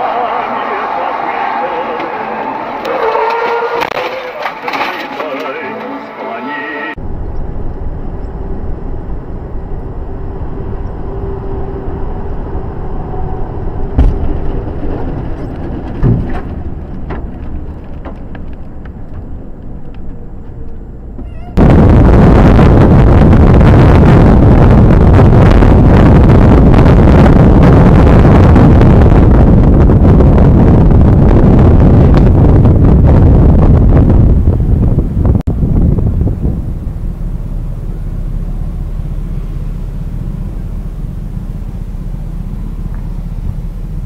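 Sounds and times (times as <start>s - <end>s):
vehicle road and engine rumble: 6.9s - 44.0s
wind rushing over microphone: 7.0s - 44.0s
sharp knocks: 14.0s - 14.5s.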